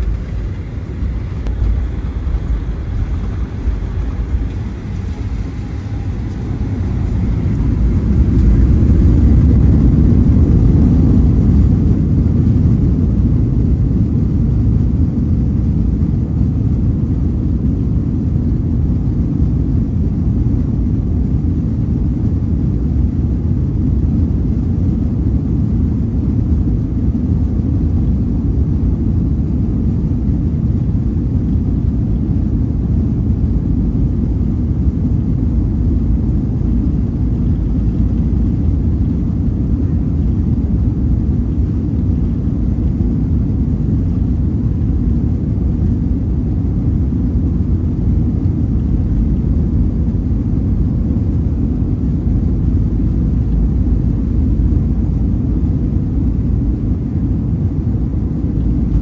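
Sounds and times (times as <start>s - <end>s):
wheels rolling on runway: 0.0s - 10.7s
rumble of jet engines: 0.0s - 59.0s.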